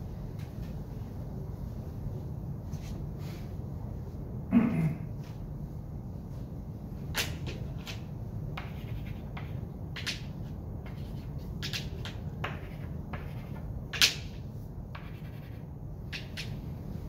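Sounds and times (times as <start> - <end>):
low room hum: 0.0 - 17.0
pen scratching on paper: 8.6 - 10.1, 10.8 - 13.7, 14.9 - 15.7.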